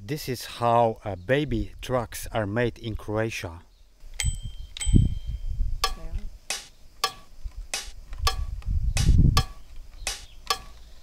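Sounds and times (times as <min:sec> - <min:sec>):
ringing metallic ticks: 0:05.8 - 0:08.6, 0:09.4 - 0:10.8.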